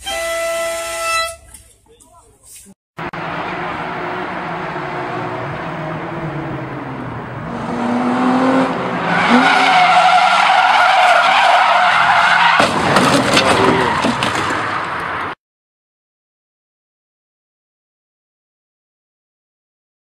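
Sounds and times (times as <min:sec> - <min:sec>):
sports car engine revving: 0:03.0 - 0:09.6
tyres squealing: 0:09.0 - 0:14.6
car scraping against kerb: 0:09.1 - 0:15.2.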